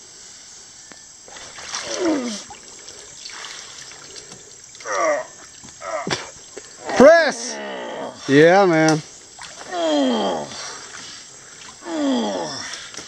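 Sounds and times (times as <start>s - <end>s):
water trickling and splashing: 1.2s - 7.0s, 8.4s - 13.0s.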